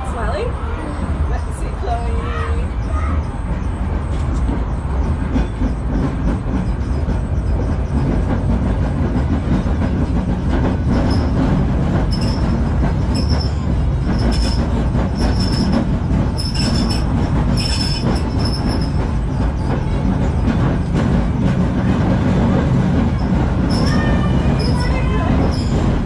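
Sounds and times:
tram wheels and motors rumbling: 0:00.0 - 0:26.0
high-pitched wheel squeals: 0:00.2 - 0:08.3, 0:10.9 - 0:11.4, 0:12.0 - 0:21.0, 0:23.1 - 0:26.0.

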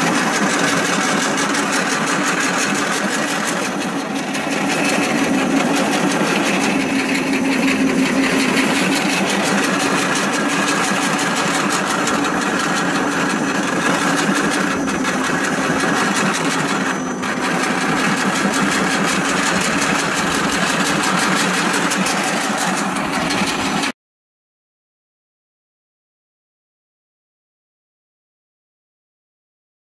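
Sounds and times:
pellet mill motor running: 0:00.0 - 0:23.9.

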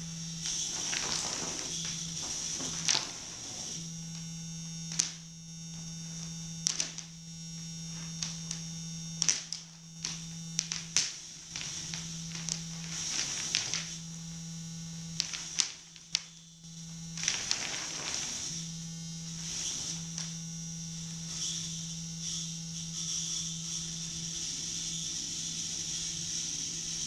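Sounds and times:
high buzz: 0:00.0 - 0:26.9
low electrical hum: 0:00.0 - 0:27.0
sharp clicks and crackles: 0:00.4 - 0:07.2, 0:07.9 - 0:14.1, 0:15.1 - 0:16.5.

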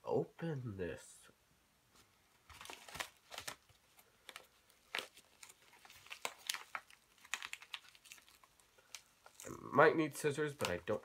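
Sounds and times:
paper mailer crinkling and tearing: 0:02.5 - 0:09.6.

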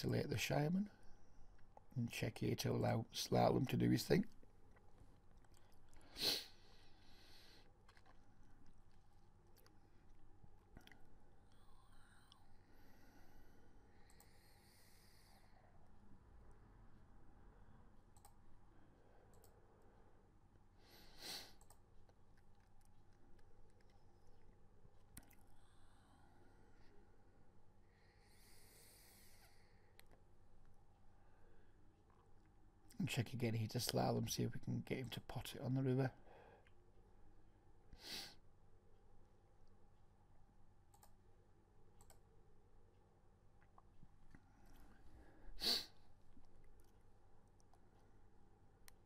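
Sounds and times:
short hiss: 0:06.1 - 0:06.6
computer mouse clicks: 0:14.0 - 0:14.5, 0:18.1 - 0:18.4, 0:19.3 - 0:19.6, 0:21.6 - 0:24.4, 0:40.9 - 0:41.2, 0:42.0 - 0:42.3.

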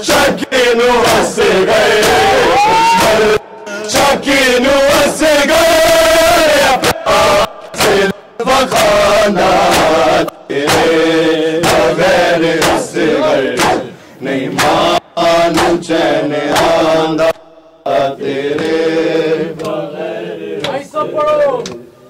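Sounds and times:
men chanting in unison: 0:00.0 - 0:21.4
chest-beating slaps: 0:06.8 - 0:09.0, 0:09.6 - 0:11.0, 0:11.6 - 0:12.0, 0:12.6 - 0:12.9, 0:13.5 - 0:13.9, 0:14.5 - 0:14.9, 0:15.5 - 0:15.8.

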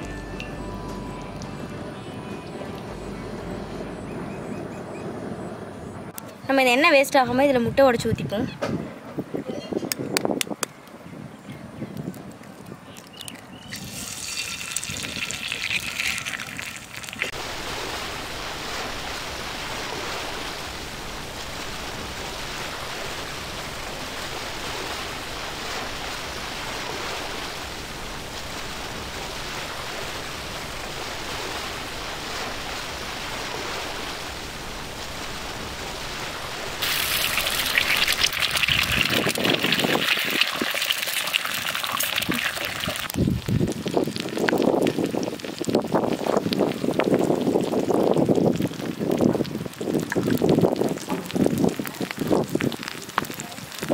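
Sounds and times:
eggs sizzling in hot oil: 0:13.1 - 0:18.1, 0:36.8 - 0:53.9.

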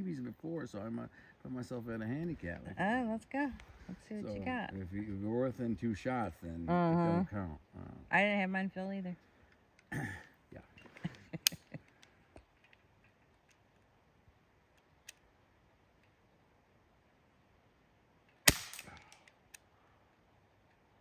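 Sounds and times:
bb gun shots: 0:18.5 - 0:19.2.

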